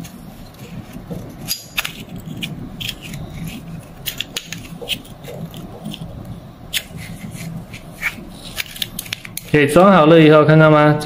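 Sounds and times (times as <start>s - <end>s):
low steady hum: 0.0s - 11.0s
metal parts clicking and scraping: 0.9s - 6.1s, 6.7s - 9.6s.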